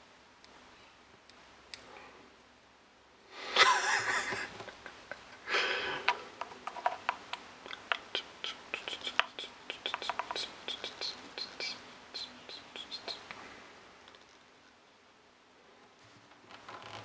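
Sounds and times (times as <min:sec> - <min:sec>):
person sniffing: 0:05.5 - 0:06.2.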